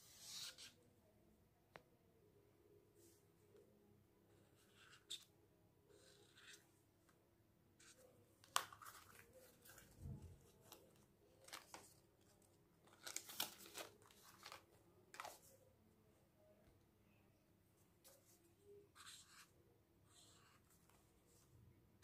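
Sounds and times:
paper rustling and crinkling: 8.4s - 15.5s.

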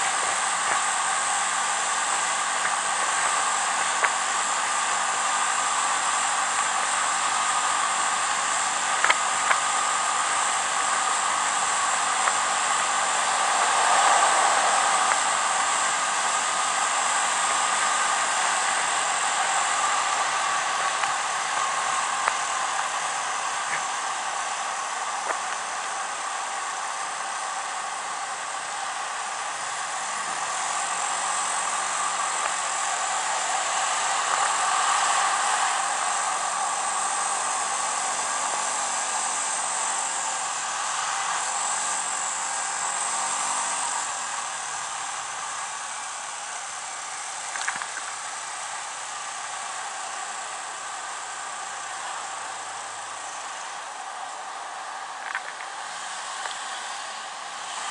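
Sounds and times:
scooter engine drone: 0.0s - 57.9s
small click: 9.0s - 9.6s, 47.5s - 48.2s, 55.2s - 55.7s.

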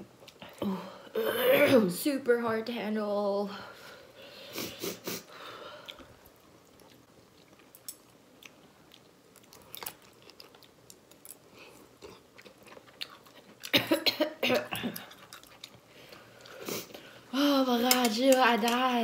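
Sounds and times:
people chewing food: 0.0s - 1.2s, 4.4s - 13.8s, 14.5s - 18.9s.

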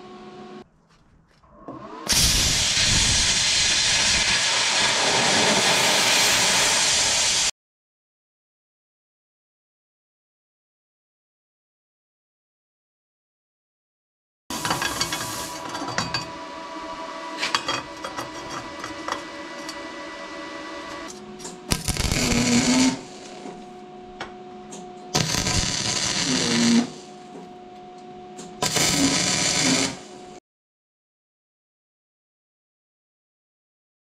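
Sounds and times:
power tool bursts: 1.7s - 7.5s, 14.5s - 23.5s, 25.1s - 27.1s, 28.6s - 30.1s
steady hum: 14.5s - 30.4s.

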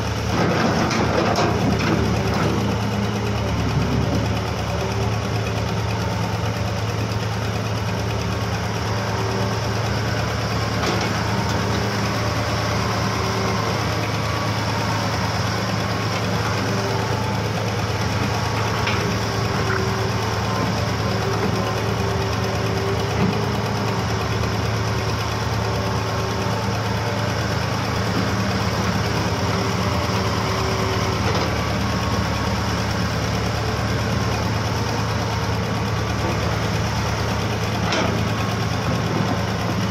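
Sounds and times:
excavator engine drone: 0.0s - 39.9s.

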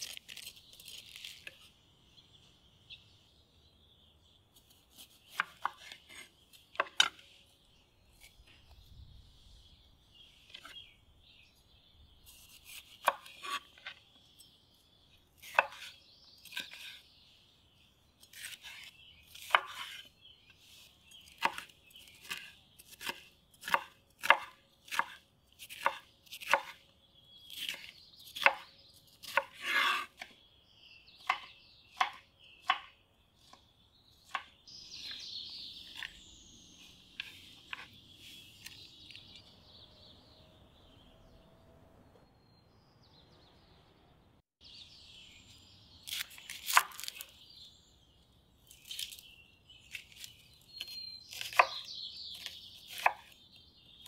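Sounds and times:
knife chopping on wooden board: 4.9s - 7.2s, 15.4s - 15.9s, 21.3s - 26.8s, 27.5s - 30.3s, 31.2s - 33.6s, 34.2s - 35.2s, 35.8s - 36.2s, 50.8s - 53.4s.

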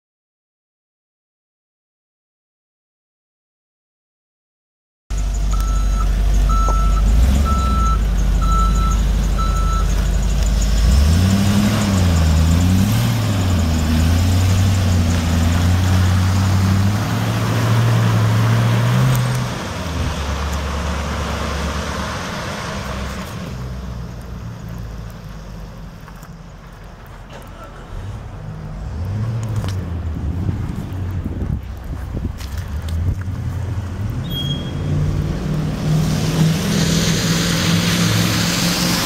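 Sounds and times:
truck backup alarm beeping: 5.1s - 14.9s, 34.2s - 34.9s
truck engine revving: 5.1s - 39.0s.

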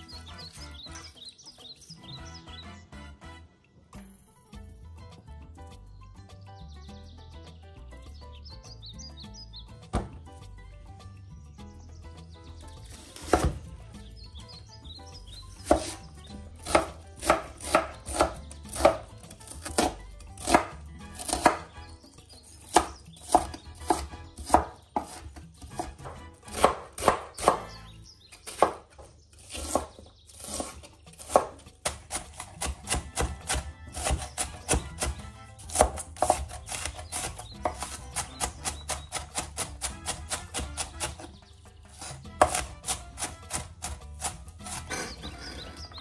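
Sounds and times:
knife chopping on wooden board: 9.9s - 10.3s, 12.8s - 13.7s, 15.5s - 21.8s, 22.4s - 46.0s.

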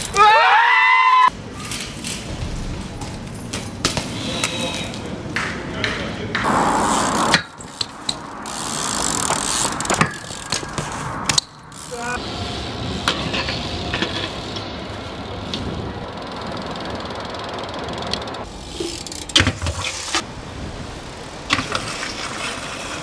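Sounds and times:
bike tyres rolling on concrete: 0.0s - 23.0s
bikes landing with knocks: 1.6s - 6.5s, 7.3s - 11.9s, 18.8s - 20.2s, 21.4s - 23.0s.

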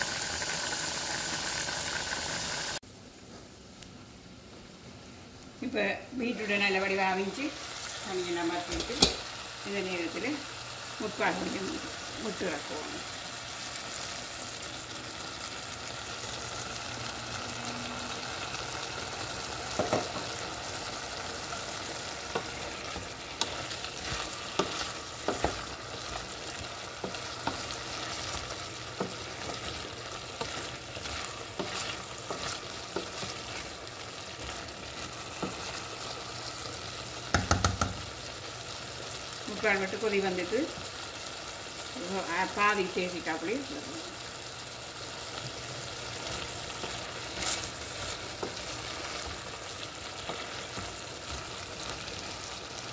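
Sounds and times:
curry sizzling in a saucepan: 0.0s - 52.9s
wooden spoon scraping and knocking pan: 19.7s - 20.4s, 22.2s - 35.8s, 46.8s - 49.5s.

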